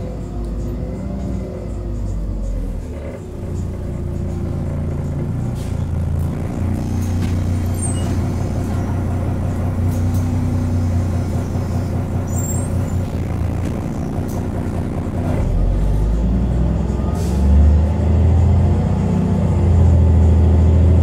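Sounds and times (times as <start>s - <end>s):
bus diesel engine drone: 0.0s - 21.0s
high squeaks and rattles: 6.9s - 8.7s.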